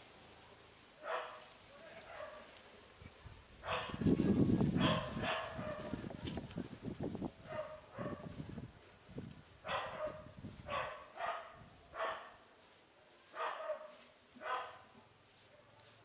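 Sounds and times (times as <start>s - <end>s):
animal barking: 3.6s - 4.0s, 4.8s - 5.9s, 9.7s - 12.3s.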